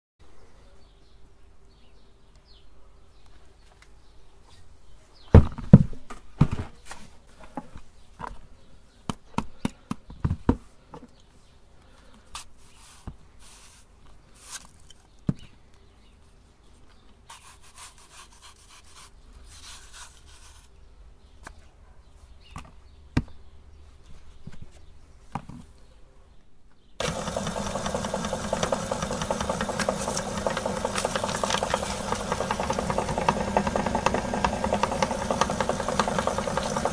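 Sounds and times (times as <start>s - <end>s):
knife cutting through apples: 27.0s - 36.7s
electric meat grinder motor: 27.0s - 36.9s.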